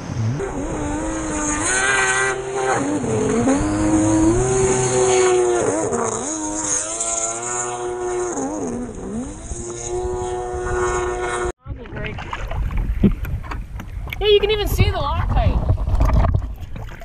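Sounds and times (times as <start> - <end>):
jet ski engine revving: 0.0 - 11.5.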